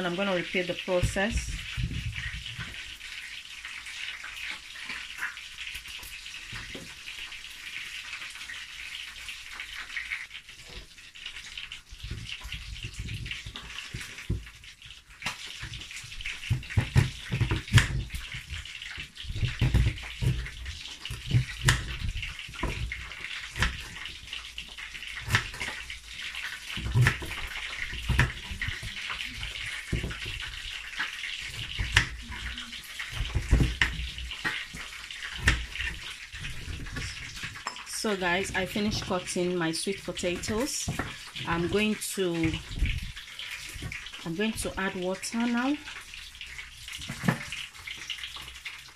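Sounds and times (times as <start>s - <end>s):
fish frying in hot oil: 0.0s - 48.9s
knife chopping on wooden board: 16.5s - 18.5s, 19.3s - 24.0s, 26.7s - 30.6s, 31.5s - 32.5s.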